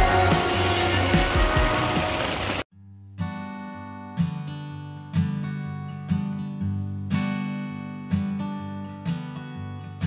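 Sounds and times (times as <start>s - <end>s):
acoustic guitar strumming chords: 0.0s - 2.6s.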